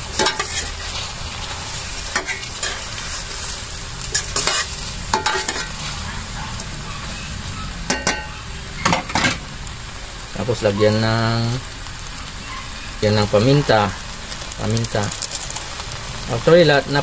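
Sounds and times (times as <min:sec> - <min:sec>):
food sizzling in a pan: 0:00.0 - 0:17.0
spoon scraping a pan: 0:00.1 - 0:09.4.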